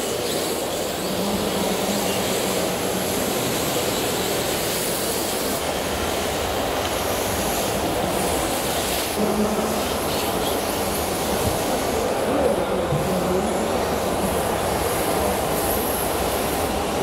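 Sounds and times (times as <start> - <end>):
exhibition hall din: 7.7 - 17.0.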